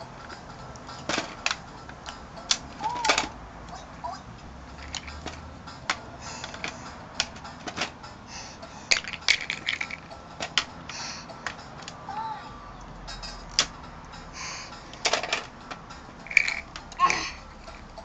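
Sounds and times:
plastic toy coins clicking: 0.2 - 3.8, 4.8 - 8.0, 8.9 - 11.9, 14.8 - 18.0.

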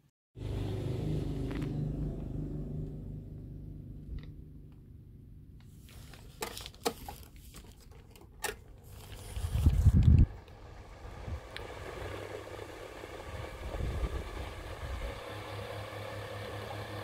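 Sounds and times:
fan motor humming: 9.0 - 17.0.

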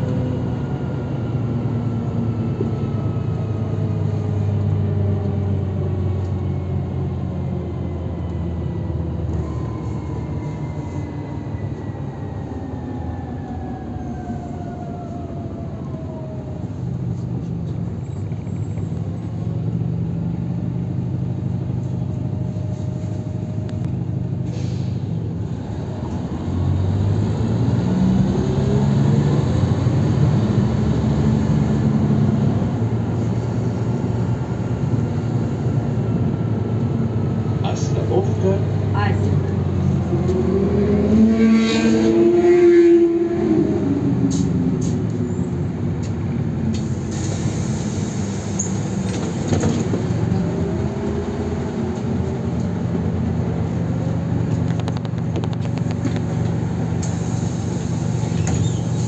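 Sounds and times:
bus engine and gearbox whine: 0.0 - 59.0
air hiss: 46.8 - 49.0.

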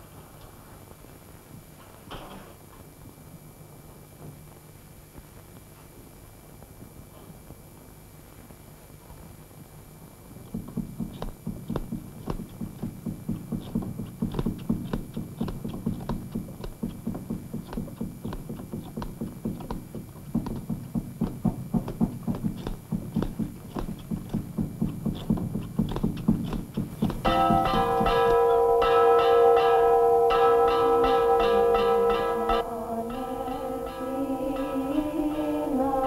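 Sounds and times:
loom beater wooden knocks: 10.5 - 32.6.

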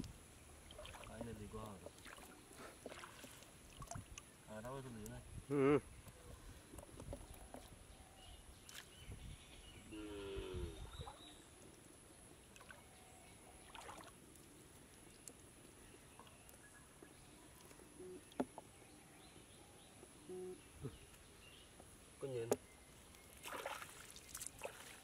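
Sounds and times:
water sloshing and splashing: 0.5 - 4.3, 10.8 - 11.3, 12.5 - 13.0, 13.6 - 15.4, 23.3 - 25.0.

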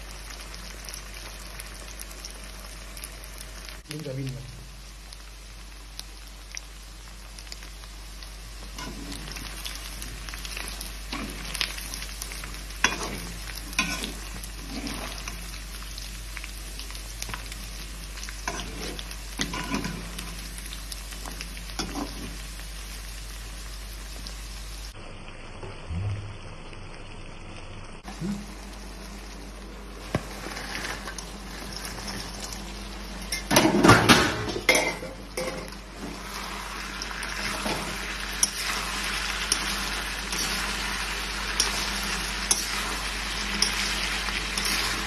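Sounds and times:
chicken sizzling in hot oil: 0.0 - 45.0
metal spoon scraping a pan: 12.9 - 15.3, 18.4 - 20.0.

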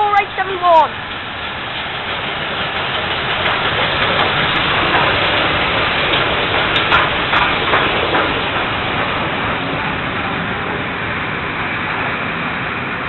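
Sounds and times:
steam locomotives hissing steam: 0.0 - 13.0
sharp knocks: 2.7 - 9.6.

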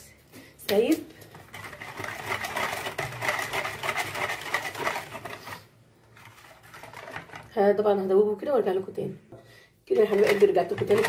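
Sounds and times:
wire whisk beating in plastic bowl: 1.3 - 5.6, 6.2 - 7.6, 9.9 - 11.0.

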